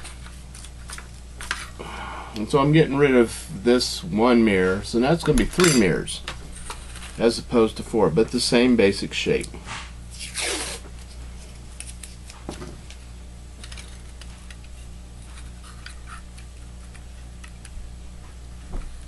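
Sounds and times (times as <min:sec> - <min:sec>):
steady low hum: 0:00.0 - 0:19.0
tape ripped off roll: 0:09.7 - 0:10.9.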